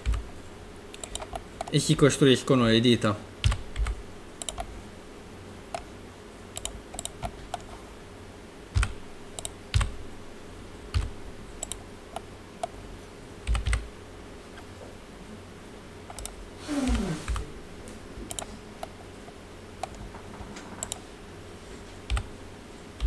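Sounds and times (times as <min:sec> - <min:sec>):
keyboard and mouse clicks: 0:00.0 - 0:00.2, 0:00.9 - 0:01.8, 0:03.4 - 0:04.7, 0:06.6 - 0:07.7, 0:08.8 - 0:10.0, 0:10.9 - 0:12.8, 0:13.5 - 0:13.9, 0:16.1 - 0:17.5, 0:18.3 - 0:19.0, 0:19.8 - 0:21.1, 0:22.0 - 0:22.3
faint steady hum: 0:00.0 - 0:23.0.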